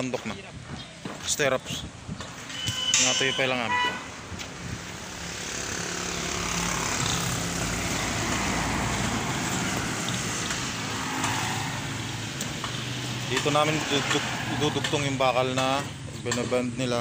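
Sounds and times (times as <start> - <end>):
rushing noise: 4.7 - 14.8
engine drone: 4.8 - 15.0.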